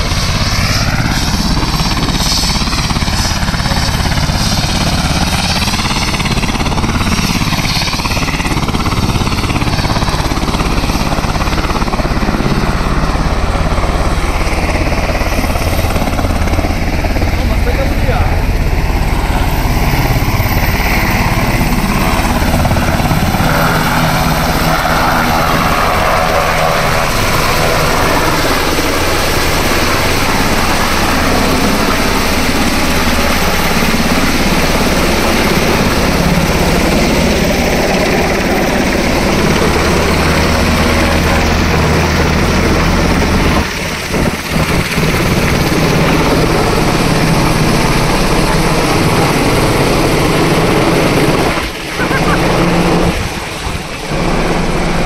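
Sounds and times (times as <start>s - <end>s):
helicopter rotor and turbine engines: 0.0s - 55.0s.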